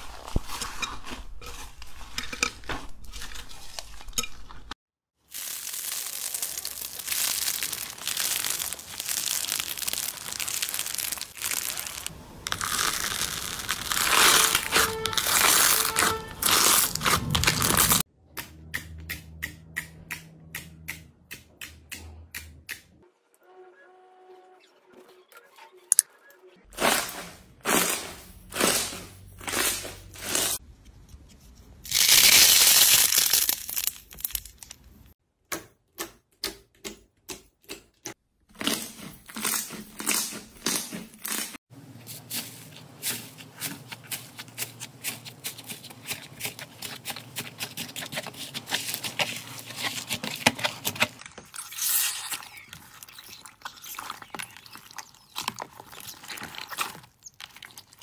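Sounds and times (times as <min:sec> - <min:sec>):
hands squishing slime: 0:42.3 - 0:58.0.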